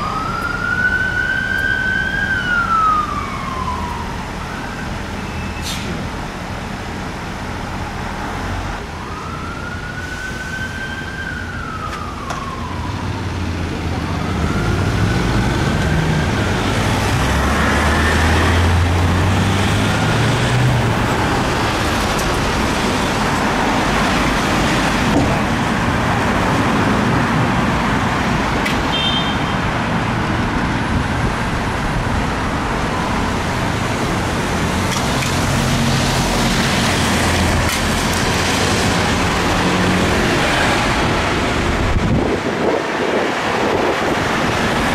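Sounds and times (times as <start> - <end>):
fire engine siren wailing: 0.0 - 5.6, 8.5 - 29.8, 30.5 - 44.9
road and traffic noise: 0.0 - 44.9
diesel truck engine accelerating: 13.2 - 28.6.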